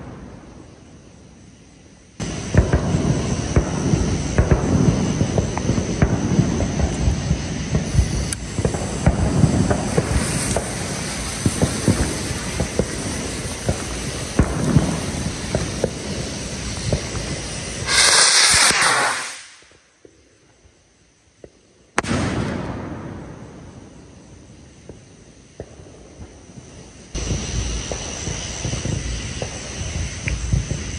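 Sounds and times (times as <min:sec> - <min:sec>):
firework crackling and popping: 0:00.0 - 0:30.9
loud firework hiss: 0:00.0 - 0:30.9
sharp crack: 0:17.8 - 0:19.7.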